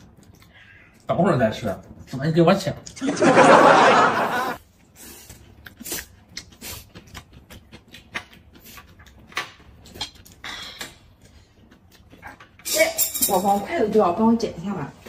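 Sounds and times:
cucumber crunching and chewing: 0:05.4 - 0:10.4.

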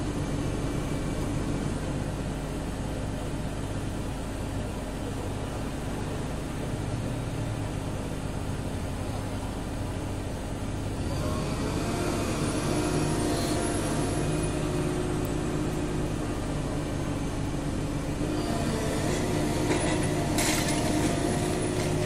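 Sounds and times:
excavator diesel engine running: 0:00.0 - 0:22.0
hydraulic whine: 0:09.0 - 0:22.0.

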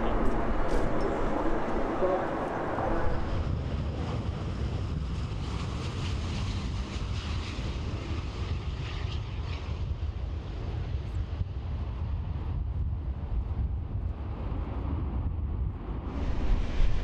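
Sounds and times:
jet engine rumble: 0:00.0 - 0:17.0
wind on microphone: 0:00.0 - 0:17.0.

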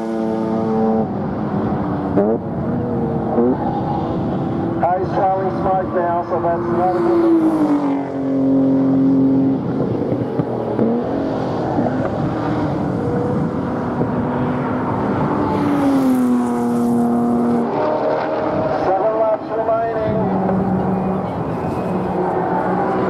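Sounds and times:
race car engines at speed: 0:00.0 - 0:23.0.

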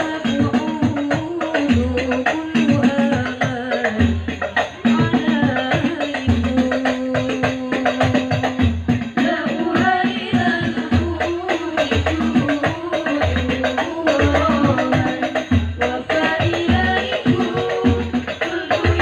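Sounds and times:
frame drums: 0:00.0 - 0:19.0
women singing in unison: 0:00.0 - 0:19.0.

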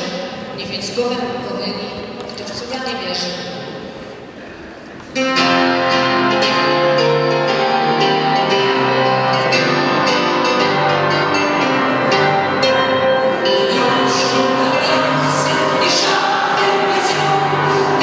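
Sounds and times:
instrumental music with held chords: 0:05.2 - 0:18.0.

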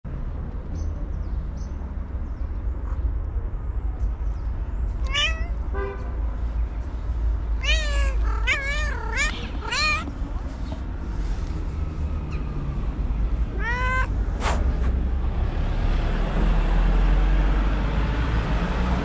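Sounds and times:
cat meowing: 0:05.0 - 0:05.7, 0:07.6 - 0:10.2, 0:13.3 - 0:14.3.

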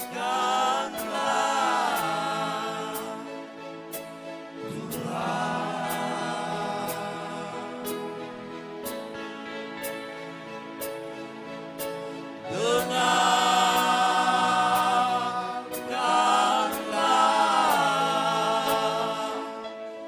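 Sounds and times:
male vocal group singing gospel: 0:00.0 - 0:03.5, 0:04.6 - 0:08.3, 0:12.5 - 0:20.0.

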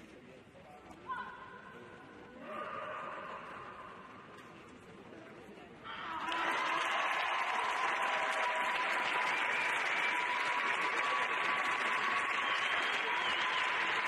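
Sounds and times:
audience applauding: 0:06.2 - 0:14.0.

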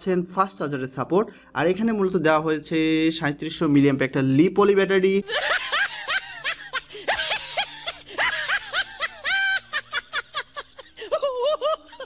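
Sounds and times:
high-pitched snickering laughter: 0:05.3 - 0:12.0.

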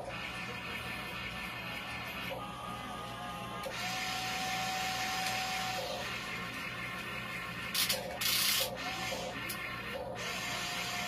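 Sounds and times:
toy electric motors whining: 0:00.0 - 0:11.0.

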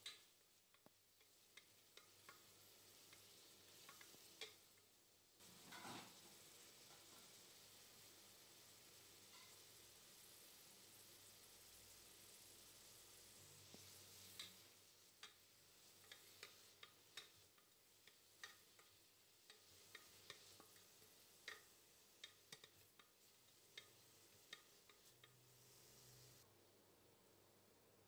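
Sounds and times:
faint frying hiss: 0:00.0 - 0:28.0
spatula knocking and scraping pot: 0:05.6 - 0:06.2, 0:16.0 - 0:25.8.

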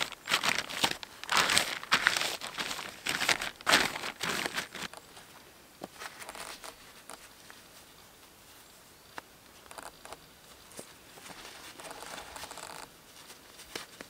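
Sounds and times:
rubber gloves being pulled on: 0:00.0 - 0:04.9
plastic sheeting crinkling: 0:00.0 - 0:05.0.

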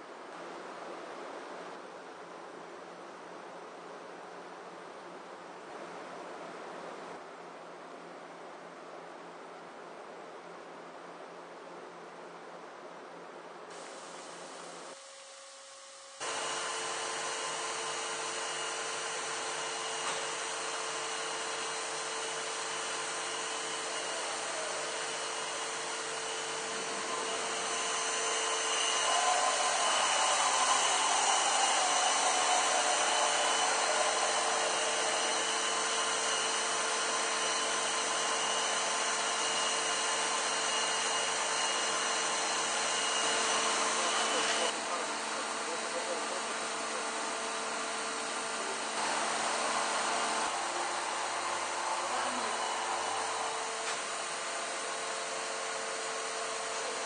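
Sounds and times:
grinder spindle whining: 0:16.2 - 0:46.1, 0:48.3 - 0:57.0.

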